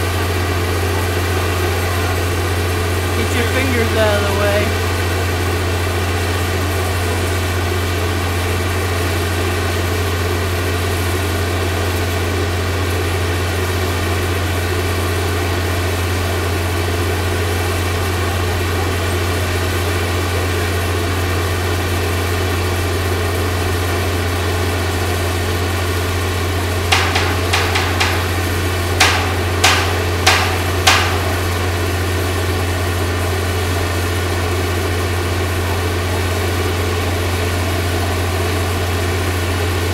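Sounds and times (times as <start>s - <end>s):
crane engine idling: 0.0s - 39.9s
sharp knocks: 26.9s - 32.0s.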